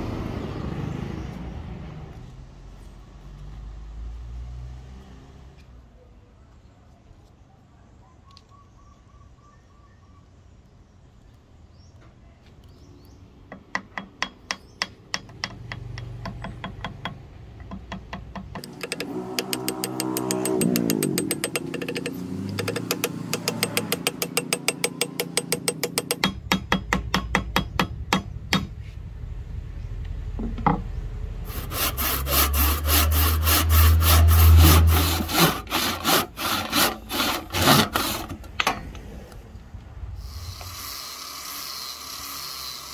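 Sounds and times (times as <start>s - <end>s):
hand saw cutting wood: 18.6s - 26.2s, 31.4s - 38.6s, 40.3s - 42.9s.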